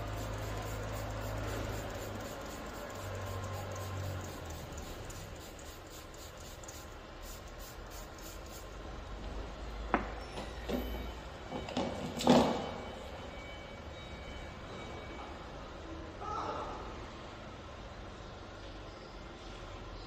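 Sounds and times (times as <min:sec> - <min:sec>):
steady low hum: 0:00.0 - 0:09.9.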